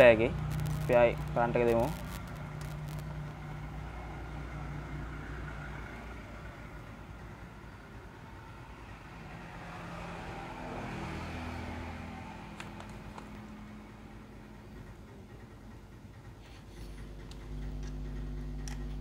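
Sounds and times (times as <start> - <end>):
low engine-like hum: 0.0 - 19.0
pitched tones: 0.4 - 3.1.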